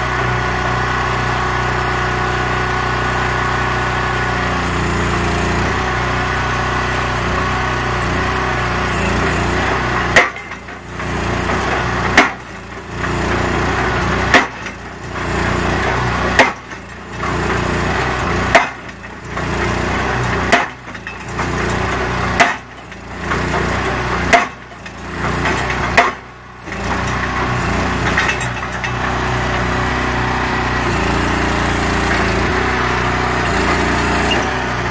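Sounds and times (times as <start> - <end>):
small engine running: 0.0 - 34.9
hydraulic hammer striking post: 8.9 - 34.9.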